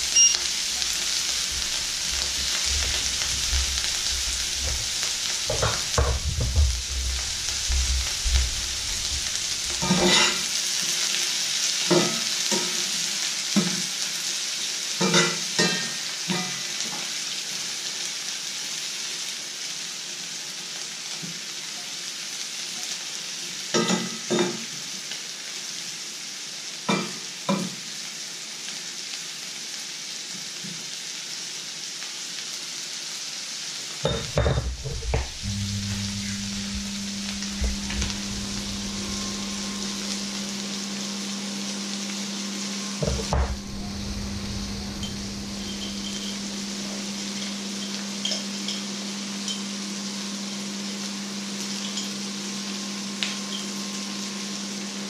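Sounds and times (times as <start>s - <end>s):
onions sizzling in a pan: 0.0s - 55.0s
knocks and rustles: 34.4s - 39.0s.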